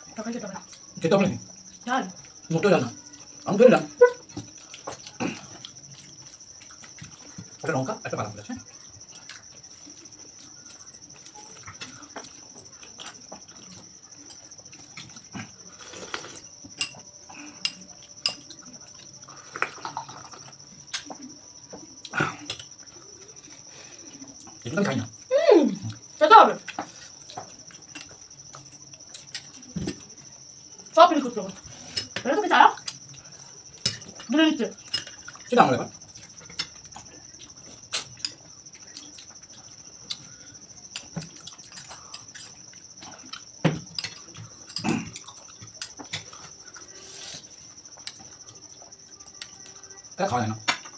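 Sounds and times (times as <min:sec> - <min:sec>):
spoons clinking against bowls: 0:16.7 - 0:18.6
spoons clicking on plates: 0:17.6 - 0:18.5.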